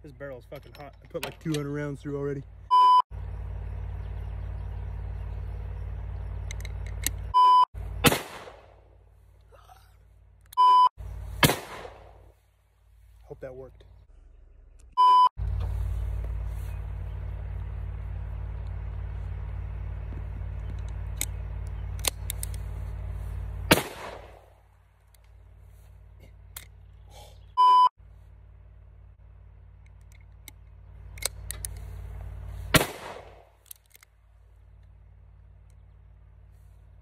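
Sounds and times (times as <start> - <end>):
high test-tone beep: 2.7 - 3.0, 7.4 - 7.7, 10.6 - 10.9, 15.0 - 15.3, 27.6 - 27.9
pistol shot: 8.0 - 8.8, 11.4 - 12.2, 23.7 - 24.4, 32.7 - 33.5.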